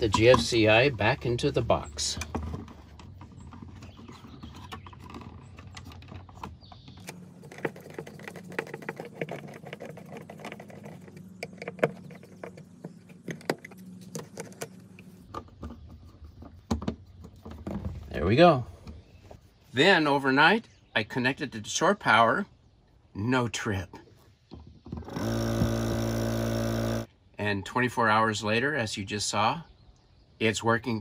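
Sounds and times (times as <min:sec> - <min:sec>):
clicks scrapes and rattles of handling: 0:02.2 - 0:17.9.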